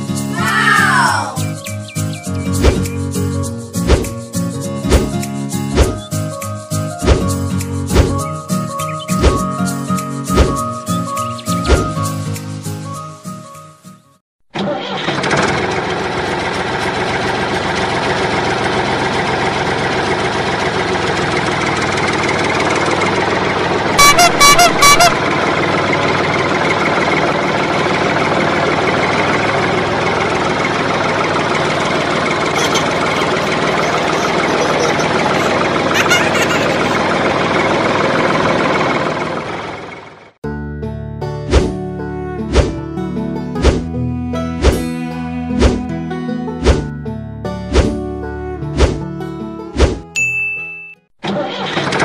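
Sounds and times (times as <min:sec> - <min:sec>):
tractor engine running: 0:14.5 - 0:40.4, 0:51.2 - 0:52.0
horn toots: 0:23.9 - 0:25.5.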